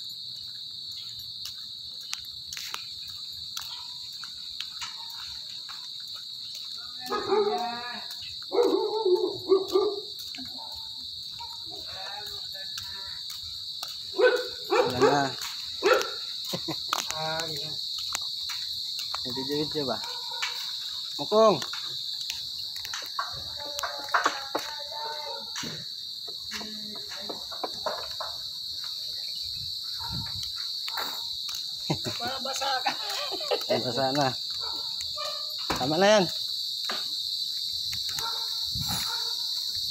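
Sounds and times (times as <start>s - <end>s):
crickets chirring: 0.0s - 39.9s
dog barking and yelping: 7.1s - 7.6s, 8.5s - 11.8s, 14.2s - 15.2s, 15.8s - 16.2s, 38.2s - 39.4s.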